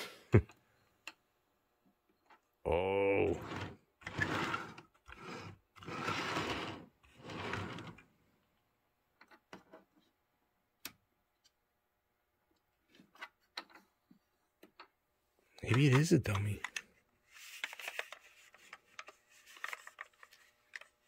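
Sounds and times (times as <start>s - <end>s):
light clicks from handling model: 15.7s - 16.9s.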